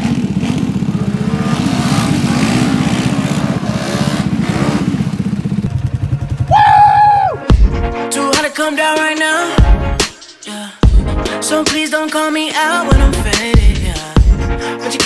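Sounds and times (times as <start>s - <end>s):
small vehicle engine revving: 0.0s - 6.9s.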